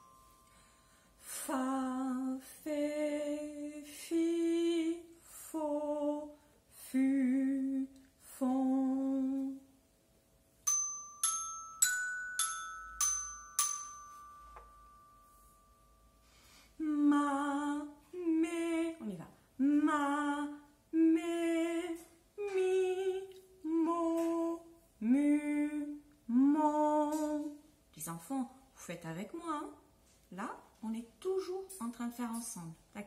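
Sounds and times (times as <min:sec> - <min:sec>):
glockenspiel notes: 0:00.0 - 0:01.2, 0:10.6 - 0:16.5
woman humming a melody: 0:16.8 - 0:27.5.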